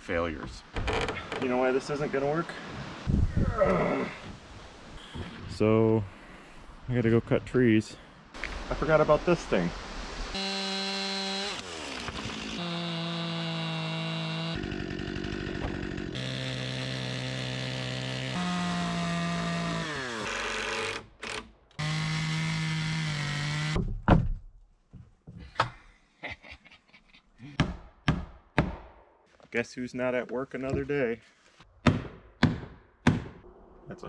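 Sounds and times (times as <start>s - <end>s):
chainsaw cutting wood: 10.4s - 23.8s
sharp knocks and thunks: 23.7s - 25.7s, 27.6s - 29.0s, 31.8s - 33.4s.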